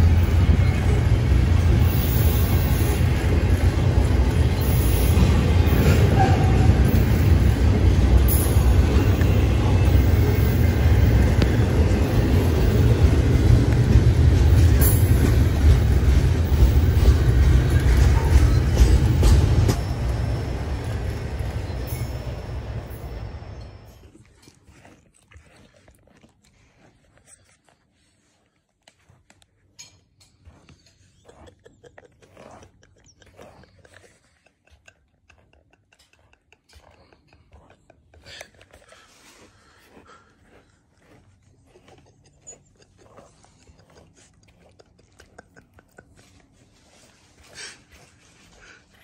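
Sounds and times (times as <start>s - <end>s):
freight train wheels rumbling on rails: 0.0s - 24.0s
dog chewing: 23.9s - 49.0s
teeth clicking and snapping: 28.7s - 46.8s.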